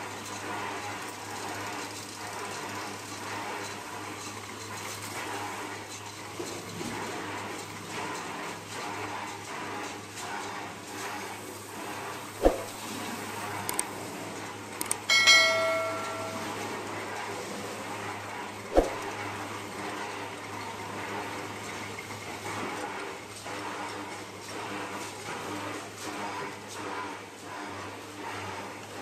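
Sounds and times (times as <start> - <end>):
metal piece clanging: 15.1 - 16.8.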